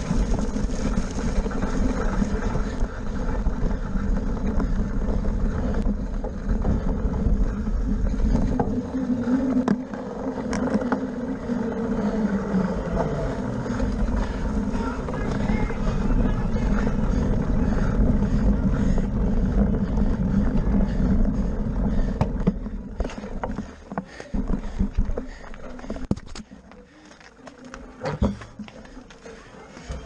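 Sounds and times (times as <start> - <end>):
wind buffeting microphone: 0.0 - 23.7
bike clicks and rattles: 0.0 - 30.0.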